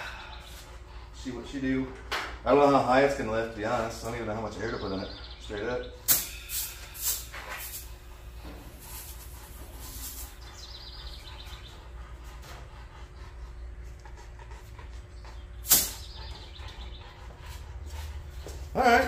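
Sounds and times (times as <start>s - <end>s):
air hissing into air bag: 6.1s - 8.0s.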